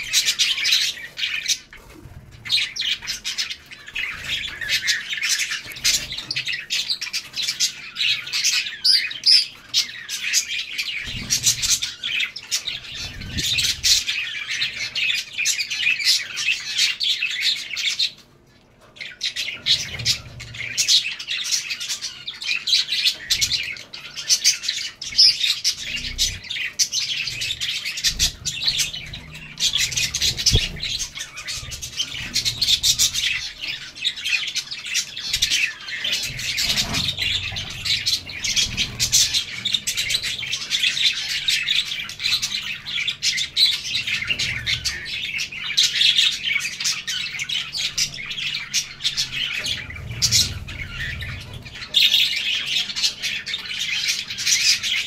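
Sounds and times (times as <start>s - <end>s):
finches chirping: 0.0s - 55.0s.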